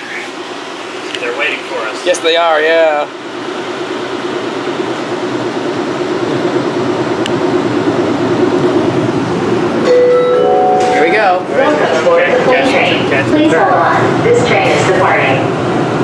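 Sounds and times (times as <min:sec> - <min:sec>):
train rumble pulling in: 0:00.0 - 0:16.0.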